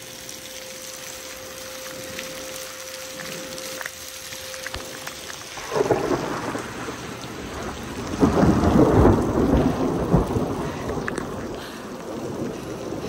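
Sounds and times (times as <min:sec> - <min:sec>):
heavy rain: 0:00.0 - 0:13.0
thunder rumble: 0:04.4 - 0:13.0.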